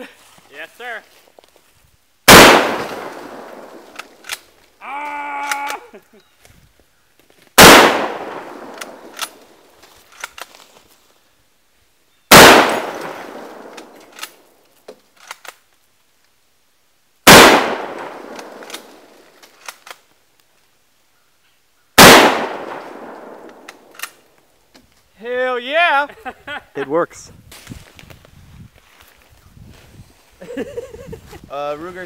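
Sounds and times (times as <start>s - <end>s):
rifle shots echoing: 2.3s - 4.5s, 7.6s - 9.6s, 12.3s - 14.3s, 17.2s - 19.1s, 22.0s - 24.2s
rifle bolt clicks: 3.9s - 4.5s, 8.7s - 9.4s, 13.6s - 14.4s, 23.4s - 24.2s.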